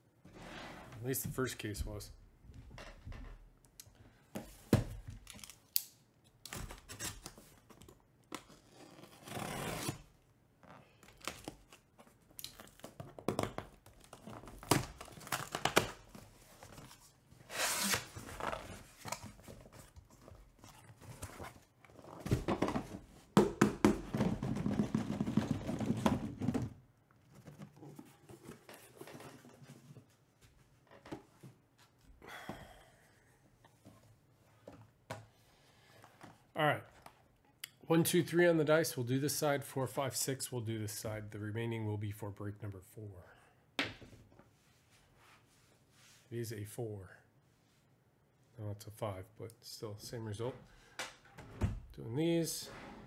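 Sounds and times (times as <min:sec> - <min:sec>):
cardboard boxes knocking and thumping: 0:04.4 - 0:05.2, 0:22.2 - 0:29.6
packing tape tearing: 0:17.5 - 0:18.7.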